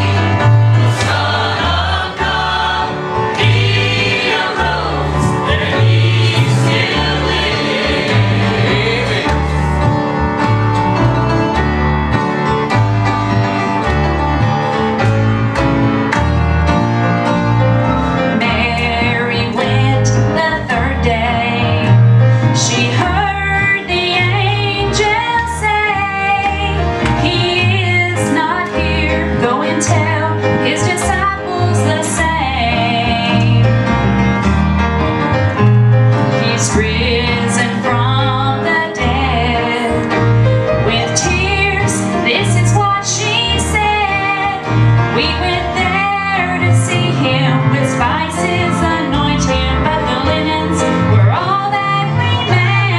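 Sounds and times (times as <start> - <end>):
choir singing gospel song: 0.0 - 10.2, 36.5 - 40.1
instrumental accompaniment: 0.0 - 52.9.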